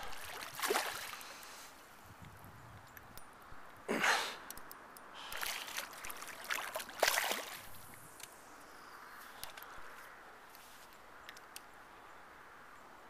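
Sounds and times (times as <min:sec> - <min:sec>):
hand splashing in water: 0:00.0 - 0:01.2, 0:05.4 - 0:07.7
river water splashing and trickling: 0:00.0 - 0:02.2, 0:02.9 - 0:11.0.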